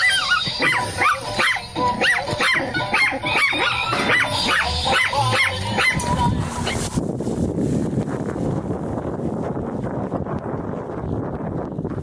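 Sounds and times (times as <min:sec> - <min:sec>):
small dog barking: 0:00.0 - 0:06.1.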